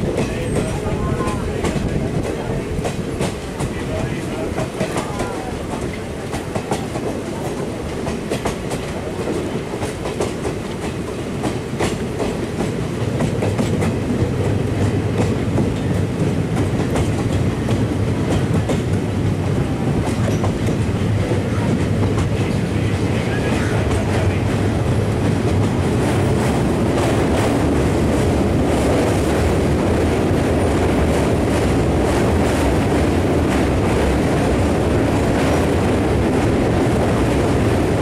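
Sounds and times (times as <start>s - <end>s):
train rumble: 0.0s - 38.0s
train wheel clicks over rails: 0.0s - 38.0s.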